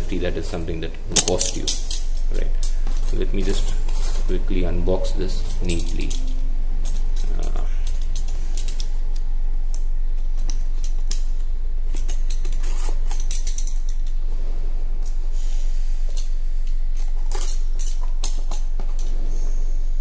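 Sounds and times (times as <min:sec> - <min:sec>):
steady low hum: 0:00.0 - 0:20.0
tape tearing: 0:11.9 - 0:14.1.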